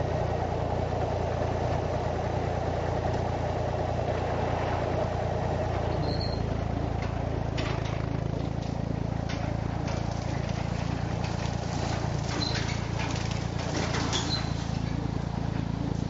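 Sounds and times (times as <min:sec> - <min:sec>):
tractor engine running: 0:00.0 - 0:16.0
blades snapping through brush: 0:07.5 - 0:16.0.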